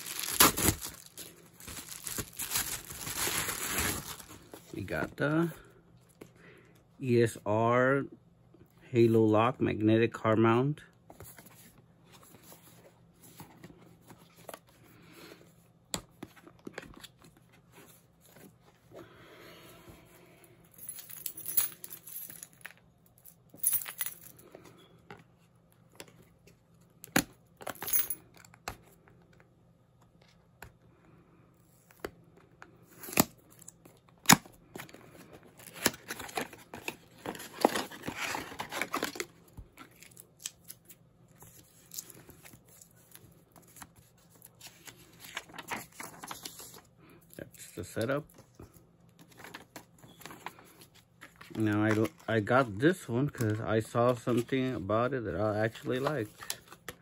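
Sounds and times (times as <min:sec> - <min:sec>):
packaging rustling and crinkling: 0:00.0 - 0:04.7, 0:34.6 - 0:40.7.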